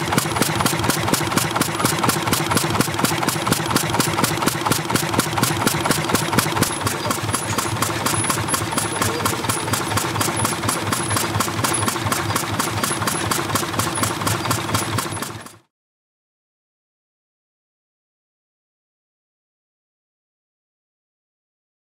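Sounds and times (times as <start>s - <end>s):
old stationary engine knocking: 0.0s - 15.7s.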